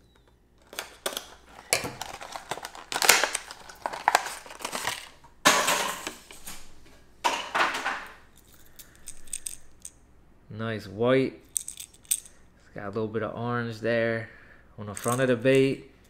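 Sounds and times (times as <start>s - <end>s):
plastic packaging crinkling: 0.6s - 5.2s.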